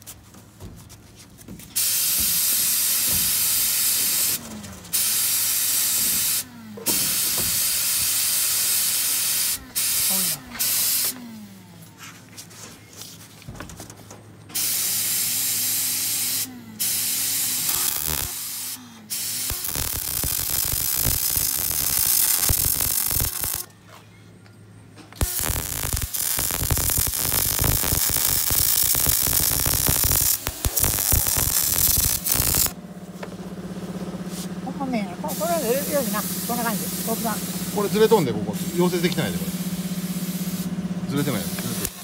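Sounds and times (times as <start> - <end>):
welder arc crackling and hissing: 1.8 - 11.2, 14.6 - 23.7, 25.2 - 32.8, 35.2 - 42.0.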